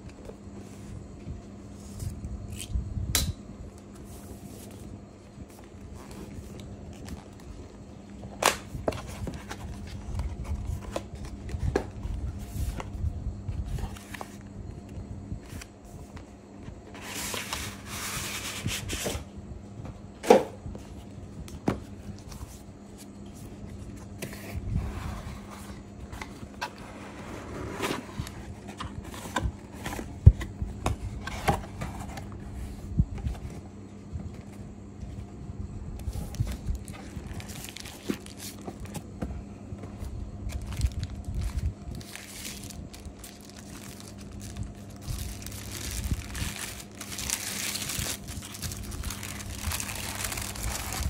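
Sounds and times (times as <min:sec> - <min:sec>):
faint steady hum: 0:00.0 - 0:51.0
cardboard flaps scraping: 0:24.2 - 0:33.6
paper rustling: 0:40.5 - 0:51.0.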